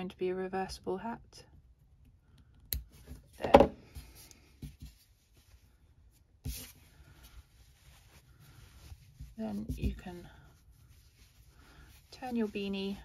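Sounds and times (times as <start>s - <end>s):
knit fabric rustling: 2.9s - 13.0s.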